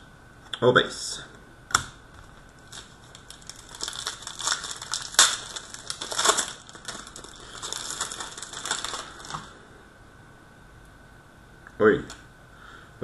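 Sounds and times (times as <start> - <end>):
plastic wrapper crinkling: 2.2 - 9.6.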